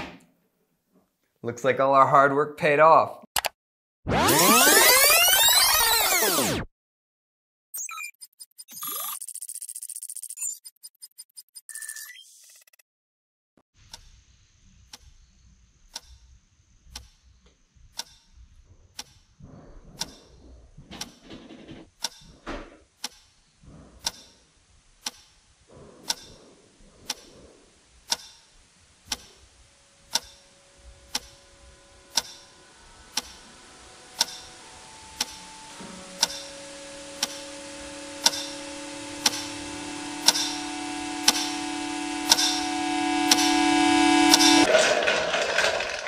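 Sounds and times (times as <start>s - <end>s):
clock ticking: 20.0s - 20.2s, 22.0s - 22.2s, 23.0s - 23.3s, 24.0s - 24.4s, 25.0s - 25.3s, 26.0s - 26.4s, 27.1s - 27.3s, 28.0s - 28.5s, 29.1s - 29.4s, 30.1s - 30.5s, 31.1s - 31.4s, 32.1s - 32.5s, 33.1s - 33.4s, 34.2s - 34.6s, 35.2s - 35.4s, 36.2s - 36.6s, 37.2s - 42.7s
faint steady tones: 23.6s - 44.7s.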